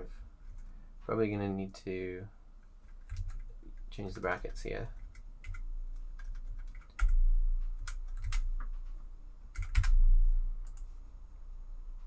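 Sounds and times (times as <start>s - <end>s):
typing on a keyboard: 2.8s - 8.8s, 9.5s - 10.0s.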